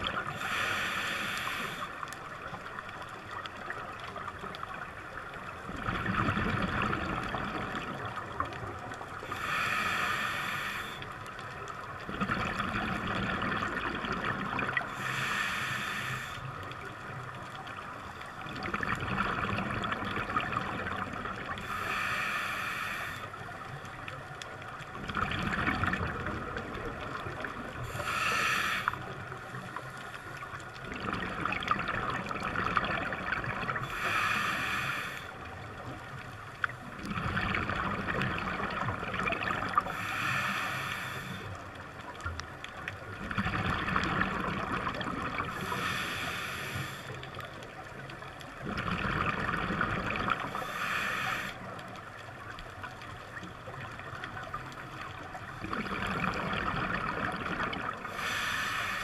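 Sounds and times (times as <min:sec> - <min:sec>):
regulator inhalation hiss: 0:00.4 - 0:02.0, 0:09.3 - 0:11.0, 0:15.0 - 0:16.5, 0:21.6 - 0:23.4, 0:27.9 - 0:30.4, 0:33.8 - 0:35.4, 0:39.8 - 0:41.5, 0:45.5 - 0:47.2, 0:50.5 - 0:51.7, 0:58.1 - 0:59.0
exhalation bubbling rumble: 0:05.7 - 0:07.9, 0:18.5 - 0:21.5, 0:25.0 - 0:27.7, 0:30.8 - 0:33.8, 0:37.0 - 0:39.8, 0:43.2 - 0:45.6, 0:48.6 - 0:50.5, 0:55.6 - 0:58.1.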